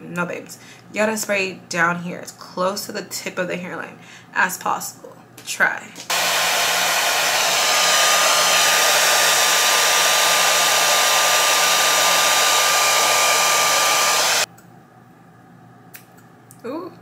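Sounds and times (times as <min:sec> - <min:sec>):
blow dryer running: 0:06.1 - 0:14.5.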